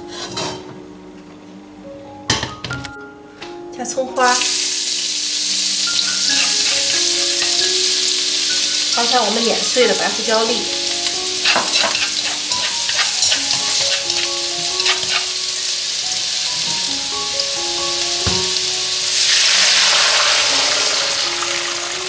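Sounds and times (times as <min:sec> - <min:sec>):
food sizzling in hot oil: 0:04.2 - 0:22.0
stock hissing in hot wok: 0:04.4 - 0:22.0
chopsticks tapping wok: 0:05.8 - 0:17.0.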